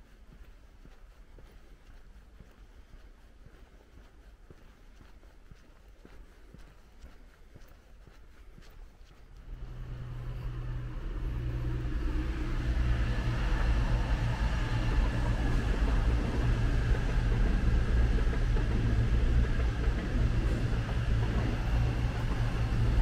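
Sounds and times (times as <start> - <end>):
diesel train engines droning: 9.3 - 23.0.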